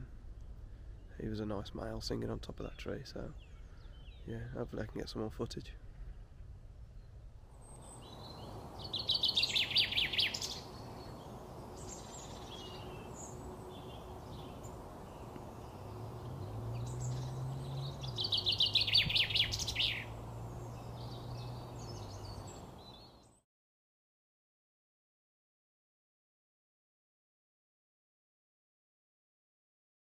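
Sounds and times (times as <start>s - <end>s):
chaffinch singing: 7.0s - 23.4s.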